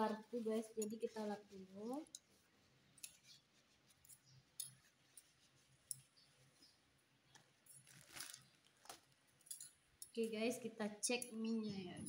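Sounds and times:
tissue rustle: 0.0 - 6.8, 7.8 - 9.4
metal cutlery clicking: 9.4 - 10.4.

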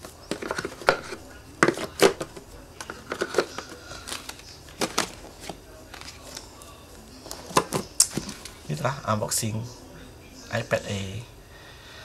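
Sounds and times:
plastic rustling: 0.0 - 8.8.

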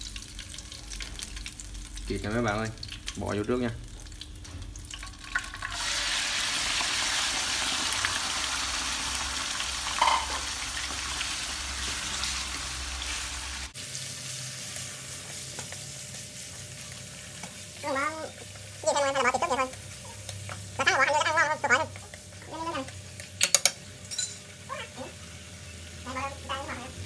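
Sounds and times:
meat sizzling in hot oil: 0.0 - 27.0
meat stirred in a pan: 5.0 - 23.9.

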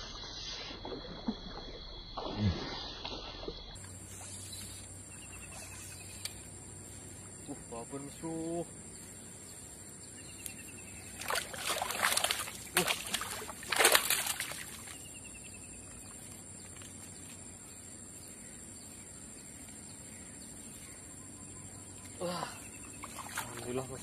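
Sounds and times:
fish thrashing and splashing: 11.0 - 15.0, 23.0 - 23.7.

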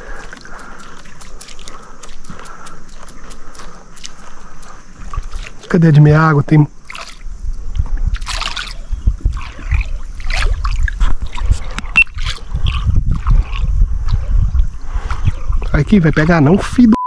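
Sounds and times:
water splashing and lapping: 0.0 - 16.6.

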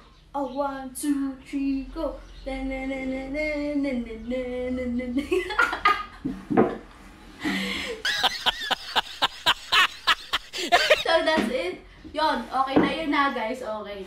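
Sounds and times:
woman singing wordless tune: 0.4 - 5.4
woman laughing: 7.4 - 11.1.

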